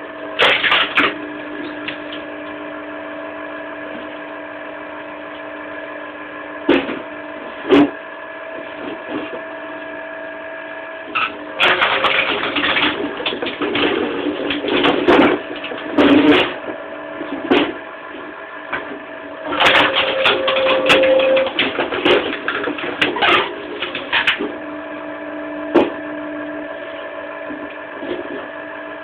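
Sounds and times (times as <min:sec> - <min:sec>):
wood grinding and crackling: 0:00.4 - 0:02.6, 0:11.1 - 0:24.6
electric motor humming: 0:07.0 - 0:29.0.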